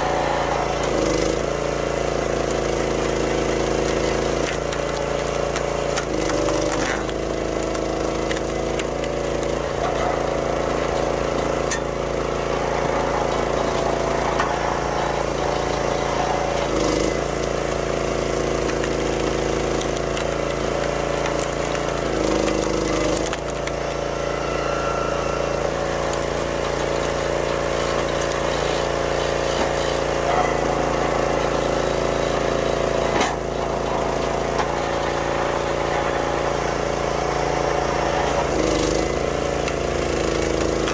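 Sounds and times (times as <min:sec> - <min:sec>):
log splitter engine running: 0:00.0 - 0:40.9
wood cracking and splitting: 0:00.0 - 0:40.9.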